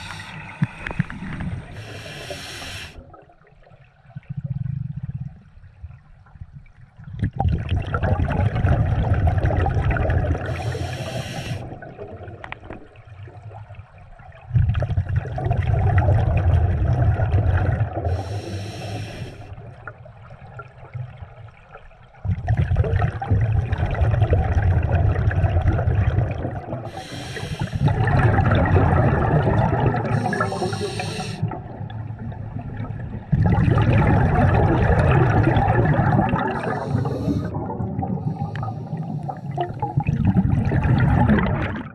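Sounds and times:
exhaled bubbles underwater: 0.0 - 41.9
regulator inhalation hiss: 1.7 - 3.0, 10.5 - 11.7, 18.1 - 19.5, 26.9 - 27.9, 30.2 - 31.5, 36.8 - 37.5.

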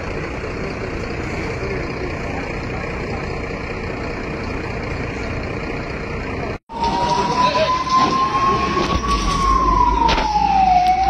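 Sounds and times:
heavy vehicle engine running: 0.0 - 11.0
rising siren: 6.6 - 11.0.

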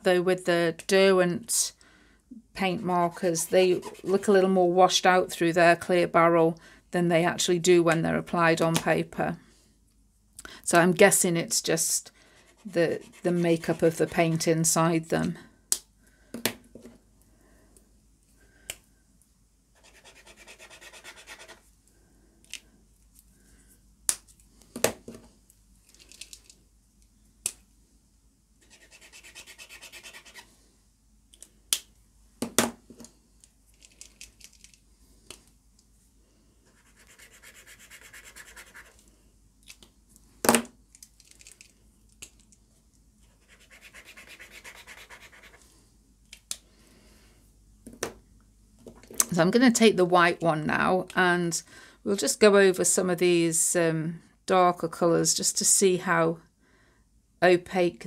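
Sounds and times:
marker scribbling on paper: 3.1 - 4.2, 12.5 - 14.5, 19.8 - 21.6, 28.6 - 30.4, 36.7 - 39.0, 43.3 - 45.6.

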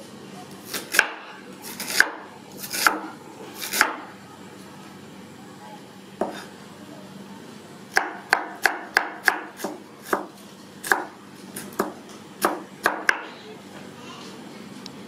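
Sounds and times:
knife chopping on wooden board: 0.7 - 4.0, 6.2 - 6.5, 7.9 - 13.3.

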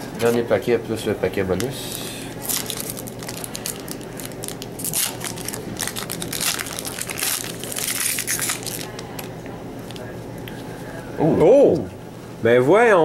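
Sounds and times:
wrapper tearing and crinkling: 2.4 - 9.3.

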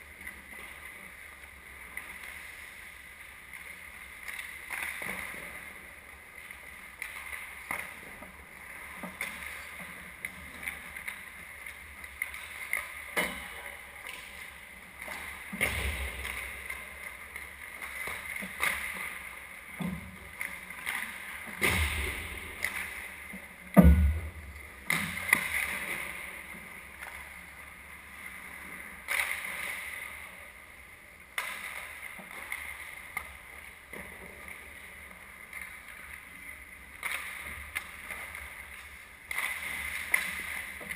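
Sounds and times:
skates scraping ice: 0.3 - 23.7, 31.2 - 40.9
hockey sticks and puck clacking: 6.5 - 24.1, 31.2 - 33.4, 36.9 - 40.9
heavy thumps: 21.6 - 22.7, 23.8 - 24.6.

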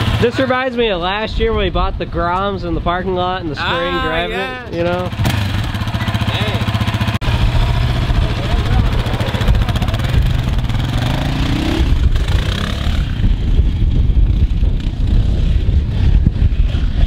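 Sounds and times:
quad bike engine revving: 0.0 - 0.6, 4.7 - 17.0.

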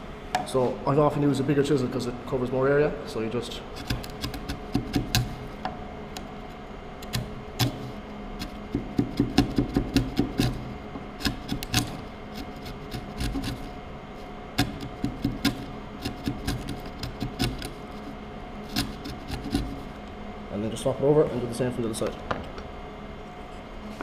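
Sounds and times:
chisel scraping wood: 3.8 - 5.5, 7.0 - 13.7, 14.6 - 20.0.

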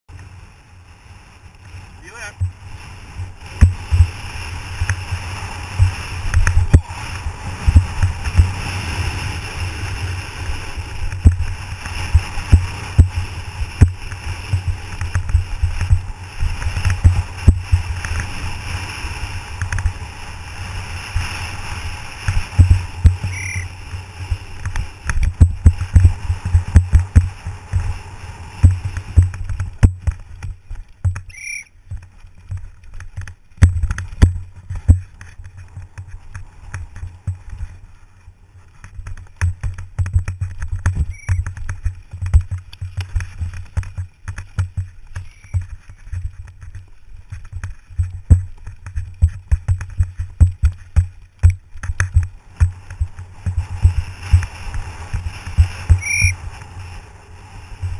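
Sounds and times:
wind rushing: 1.0 - 29.8
bike thumping and rattling: 2.4 - 57.2.

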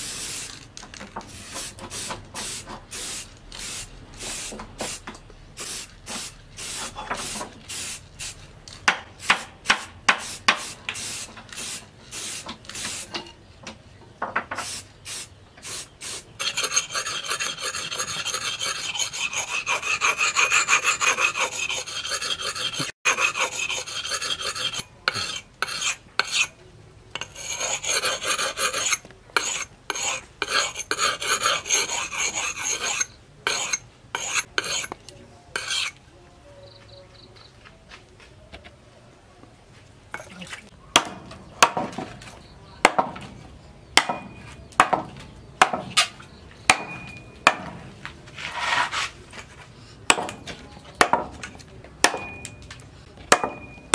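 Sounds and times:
axe scraping on sharpening stone: 16.4 - 26.6, 27.2 - 35.0, 35.6 - 36.0.

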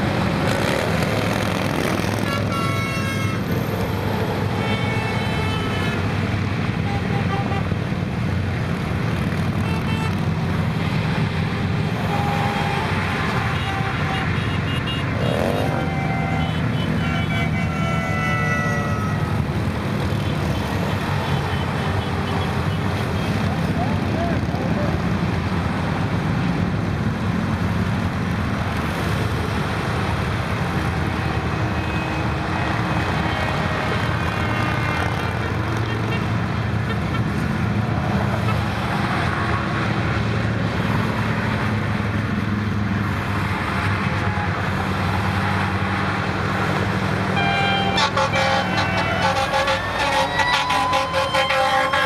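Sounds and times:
highway traffic passing: 0.0 - 52.0
air horn blast: 12.0 - 19.4, 47.4 - 52.0
fire engine siren: 15.2 - 19.6, 47.3 - 52.0.

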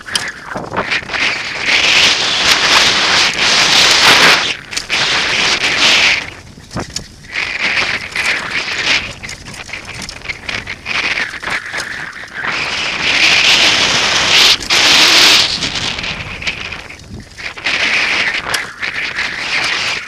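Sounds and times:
bike rattling over bumps: 0.0 - 20.0
tyres crackling on soil: 0.0 - 20.0
wind rushing over microphone: 0.0 - 20.0.

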